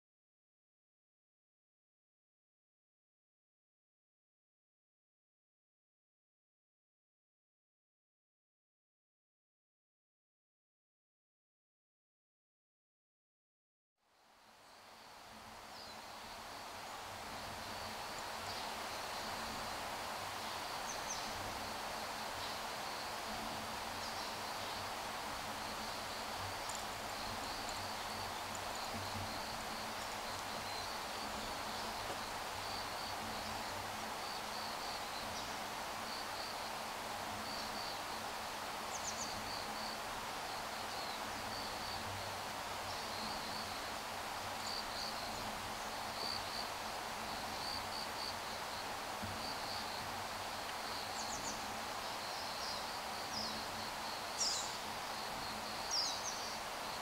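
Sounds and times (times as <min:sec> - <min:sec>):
even outdoor hiss: 0:14.0 - 0:57.0
insect chirping in pulses: 0:25.5 - 0:36.6.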